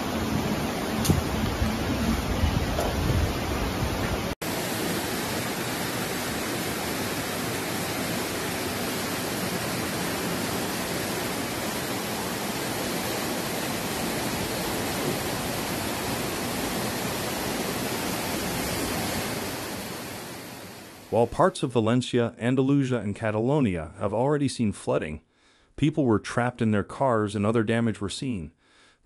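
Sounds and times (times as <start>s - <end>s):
floodwater rushing: 0.0s - 21.3s
storm wind and rain: 0.0s - 21.4s.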